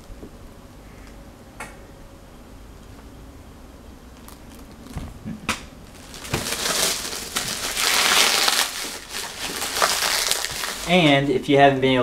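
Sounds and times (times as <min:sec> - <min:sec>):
bubble wrap crinkling: 0:04.1 - 0:11.3.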